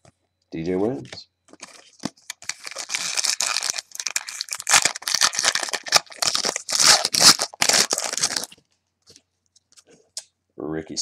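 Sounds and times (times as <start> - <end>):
wrapper tearing and crinkling: 1.5 - 8.6.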